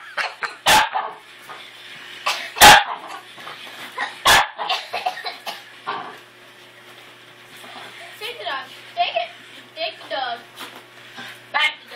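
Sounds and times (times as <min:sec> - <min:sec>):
small dog barking: 0:00.6 - 0:01.2, 0:02.6 - 0:03.1, 0:04.2 - 0:04.7.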